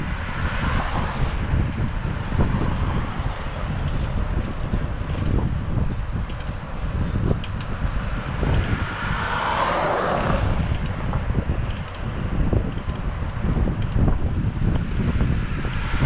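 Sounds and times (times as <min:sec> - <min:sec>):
wind buffeting microphone: 0:00.0 - 0:16.0
car passing: 0:05.6 - 0:13.6.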